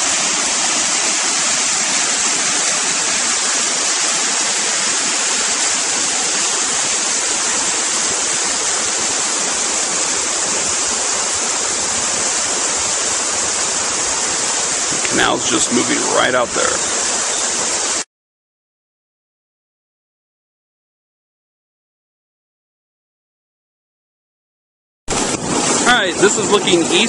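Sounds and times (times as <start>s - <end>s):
water rushing along a ditch: 0.0s - 18.1s, 25.1s - 27.0s.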